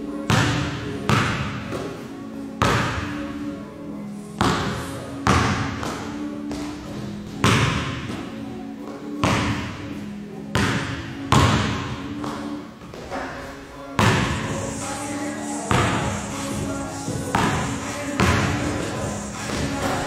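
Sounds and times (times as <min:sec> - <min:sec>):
basketball thudding in a gym: 0:00.3 - 0:02.0, 0:02.6 - 0:03.2, 0:04.4 - 0:08.3, 0:09.2 - 0:09.8, 0:10.6 - 0:12.4, 0:14.0 - 0:14.6, 0:15.7 - 0:17.6, 0:18.2 - 0:18.9.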